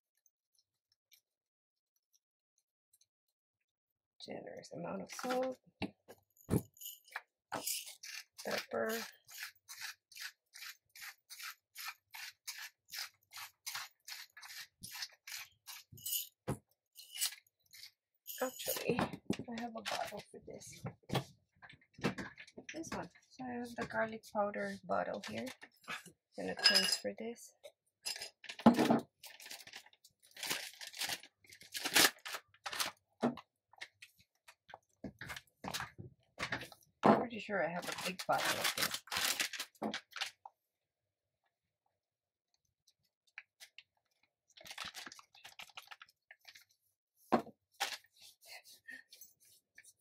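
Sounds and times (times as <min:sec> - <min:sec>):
pepper grinder grinding: 0:06.8 - 0:16.4, 0:17.0 - 0:18.8
packaging crinkling and rustling: 0:29.2 - 0:33.0, 0:37.8 - 0:40.4, 0:44.5 - 0:46.7.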